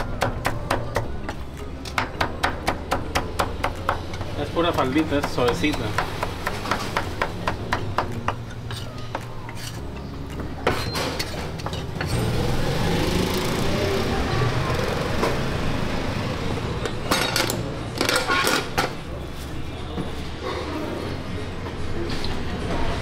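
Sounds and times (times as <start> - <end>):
knife chopping meat on board: 0.0 - 9.7.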